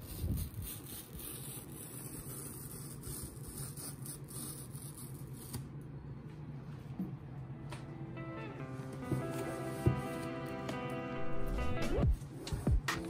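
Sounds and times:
packing tape peeling off cardboard: 0:00.0 - 0:05.7.

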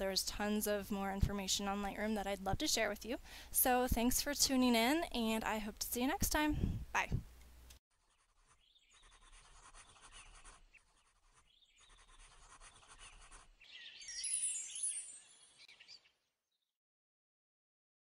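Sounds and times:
pencil scratching on paper: 0:07.9 - 0:13.7.

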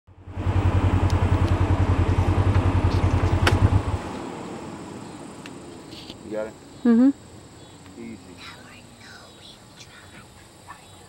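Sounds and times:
engine idling: 0:00.1 - 0:04.1.

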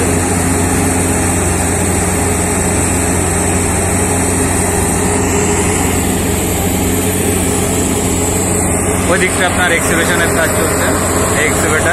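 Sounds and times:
diesel engine droning: 0:00.0 - 0:11.9.

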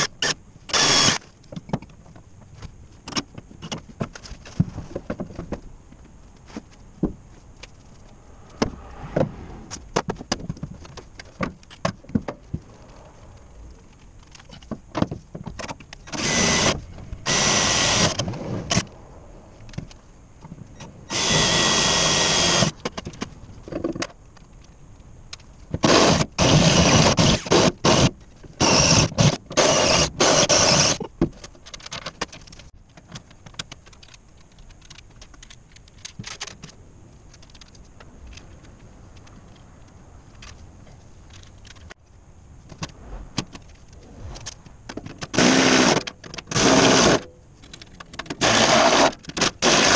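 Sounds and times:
cordless drill boring into metal: 0:00.0 - 0:01.2, 0:16.1 - 0:18.8, 0:21.1 - 0:22.7, 0:25.8 - 0:31.0, 0:48.4 - 0:49.9.

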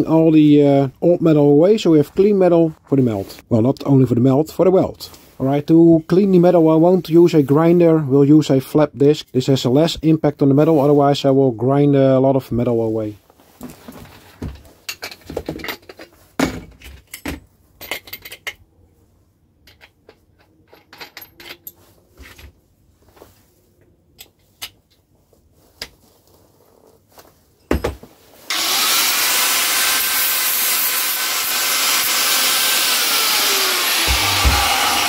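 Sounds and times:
tool handling clicks and knocks: 0:13.6 - 0:18.6, 0:19.6 - 0:22.5
angle grinder sanding metal: 0:28.5 - 0:35.0.

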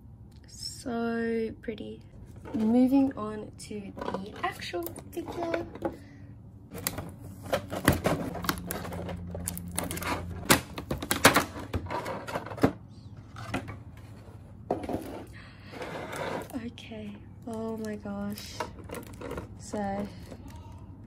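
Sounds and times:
plastic packaging crinkling: 0:06.7 - 0:11.6.

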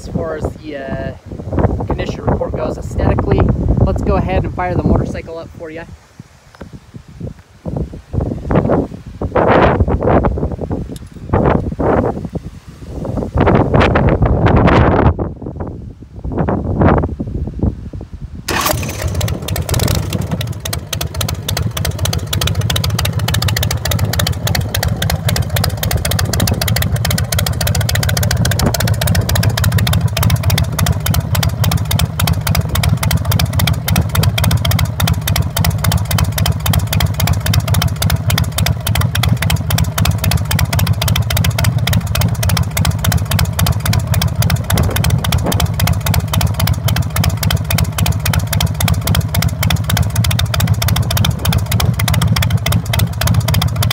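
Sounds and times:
motorcycle engine idling: 0:18.5 - 0:53.9.

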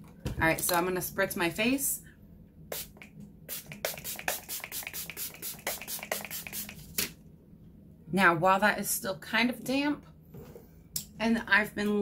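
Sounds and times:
spray bottle spritzing: 0:02.7 - 0:07.0.

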